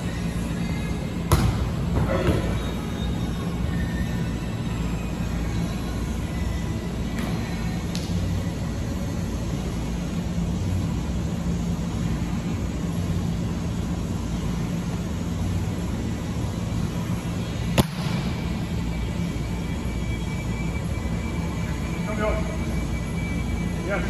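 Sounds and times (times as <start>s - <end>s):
low hum of indoor hall: 0.0s - 24.0s
hand slapping volleyball: 1.3s - 1.6s, 7.2s - 8.2s.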